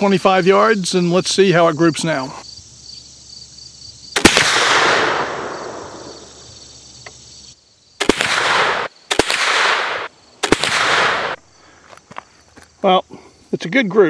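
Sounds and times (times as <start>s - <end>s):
rifle shot with echo: 4.2s - 6.5s, 8.0s - 11.4s.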